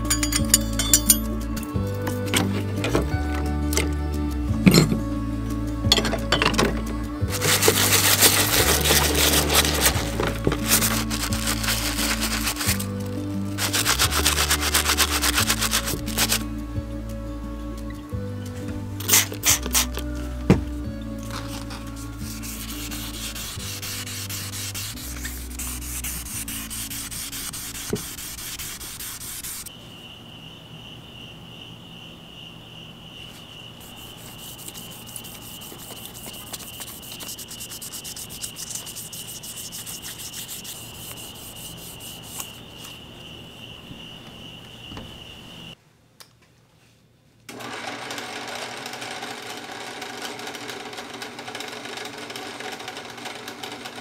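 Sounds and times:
drill press buffing wheel spinning: 7.3 - 16.4, 47.5 - 54.0
sandpaper scraping metal: 7.3 - 16.4, 19.0 - 20.0, 21.3 - 29.7, 33.8 - 42.9.

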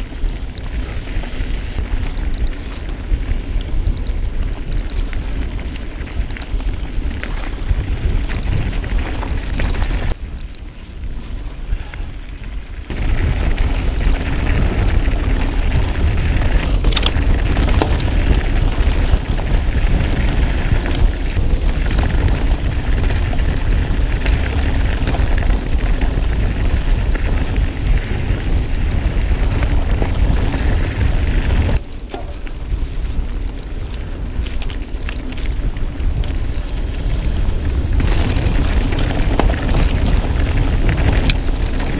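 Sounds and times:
wind rushing over microphone: 0.0 - 41.9
bike knocks and rattles: 12.9 - 41.9.

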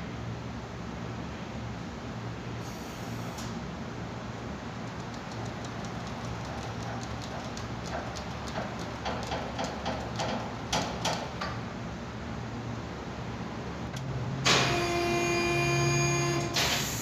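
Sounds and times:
steady hum with several pitches: 11.7 - 17.0.

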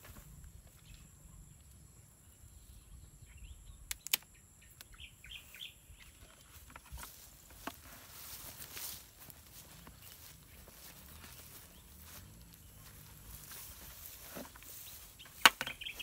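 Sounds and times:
bird chirps: 2.3 - 6.6, 8.9 - 16.0
grass rustling: 5.3 - 16.0.

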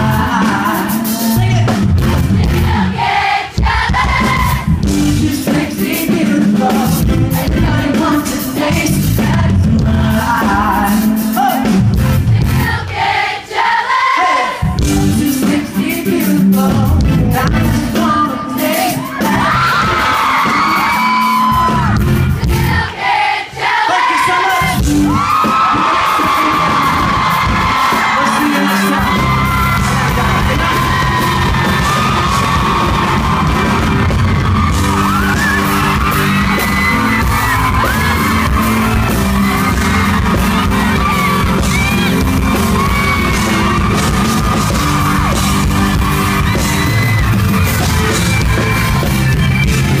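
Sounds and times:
crowd singing along: 0.0 - 48.8
live pop band playing: 0.0 - 50.0
crowd yelling and whooping: 2.5 - 4.9, 18.8 - 50.0.

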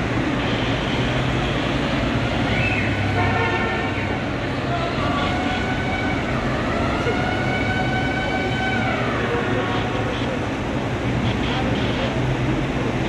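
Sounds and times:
steady background noise: 0.0 - 13.0
siren wailing: 4.4 - 10.1.

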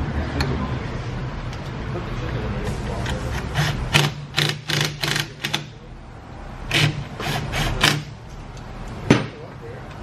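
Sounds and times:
impact driver bursts: 3.4 - 5.7, 6.7 - 8.2.

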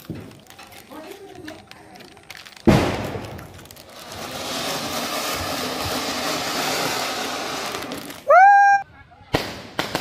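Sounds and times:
fountain firework hissing: 2.7 - 8.4.

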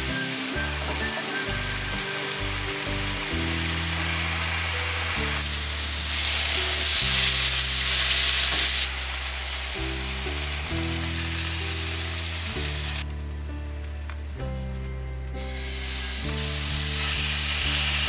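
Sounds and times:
steak sizzling in a skillet: 0.0 - 13.0, 15.4 - 18.0
background music with low notes: 0.0 - 18.0.

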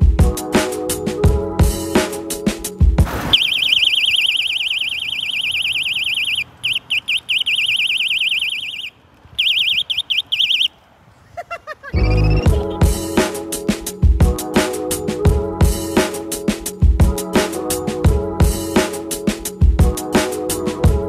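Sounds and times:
electronic bicycle horn warbling: 3.3 - 10.7.

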